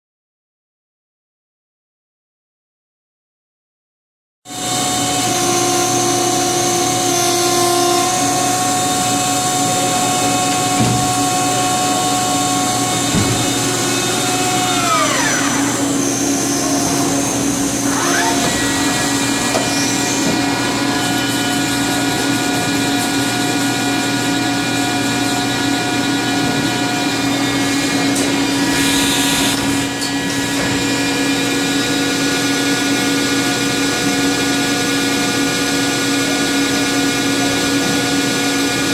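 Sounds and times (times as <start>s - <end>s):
lathe spindle whining: 4.5s - 34.2s.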